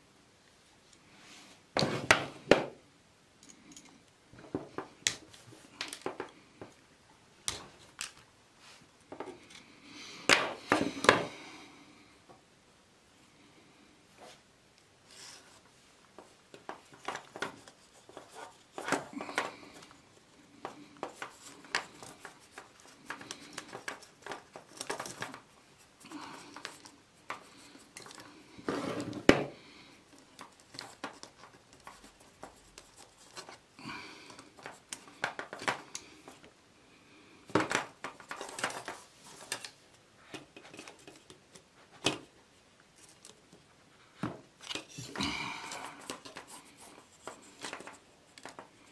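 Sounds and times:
pliers handled on a tabletop: 3.4s - 6.4s.

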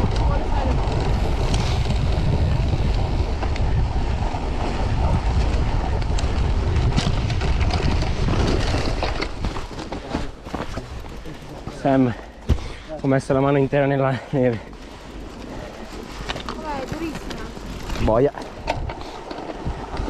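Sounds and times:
wind rushing over microphone: 0.0s - 9.9s, 15.6s - 20.0s.

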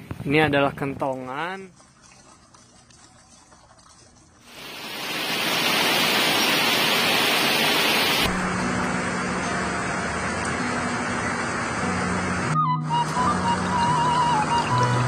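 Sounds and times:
heavy rain pouring: 4.5s - 8.4s.

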